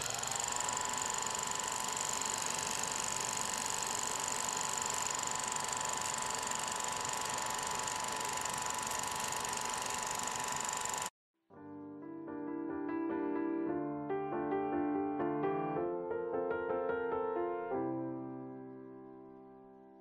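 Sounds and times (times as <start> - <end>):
clockwork gears whirring: 0.0 - 11.1.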